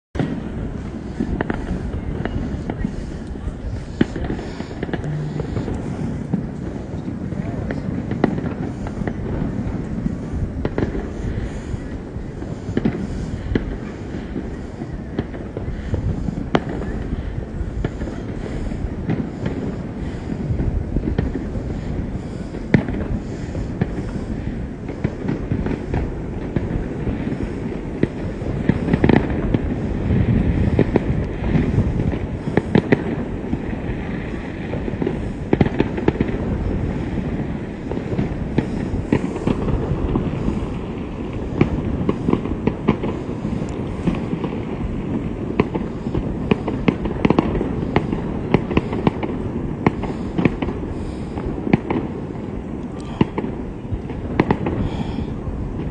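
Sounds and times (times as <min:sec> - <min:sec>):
low rumble: 0:00.2 - 0:12.5
fireworks bangs and crackles: 0:00.2 - 0:55.9.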